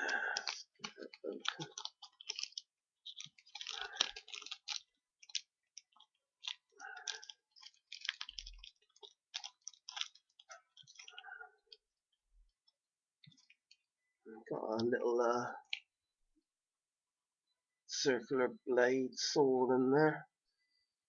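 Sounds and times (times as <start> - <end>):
plastic packaging crackling: 0.0 - 11.8.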